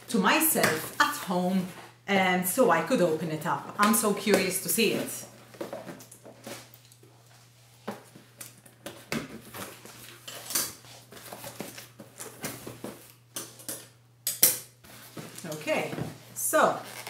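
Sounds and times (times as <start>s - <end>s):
cardboard and tape rustling: 5.4s - 13.2s, 14.8s - 17.0s.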